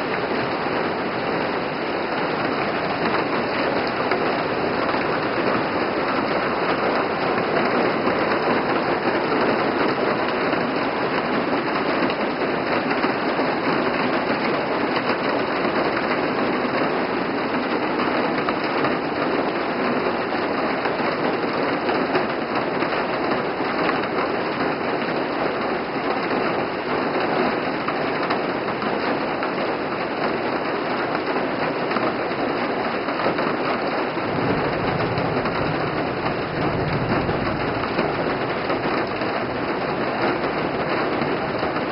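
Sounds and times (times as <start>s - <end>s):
heavy rain pouring: 0.0s - 41.9s.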